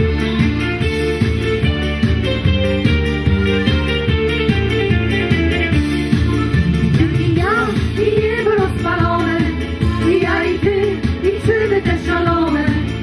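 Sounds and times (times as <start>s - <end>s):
backing music with steady beat: 0.0s - 13.0s
vocal group singing: 7.4s - 13.0s.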